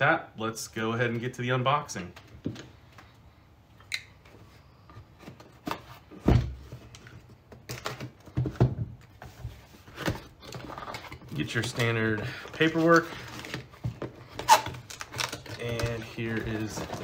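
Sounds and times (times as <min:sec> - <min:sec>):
cardboard boxes knocking and scraping: 0:05.2 - 0:10.6.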